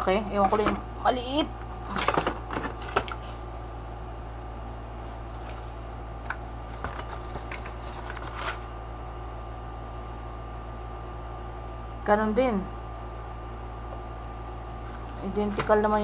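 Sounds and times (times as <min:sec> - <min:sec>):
steady low hum: 0:00.0 - 0:16.0
packaging rustling: 0:06.7 - 0:08.8.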